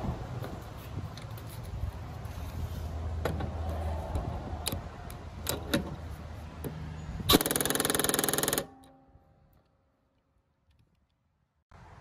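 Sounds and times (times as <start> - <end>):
impact wrench rattling: 7.3 - 8.9.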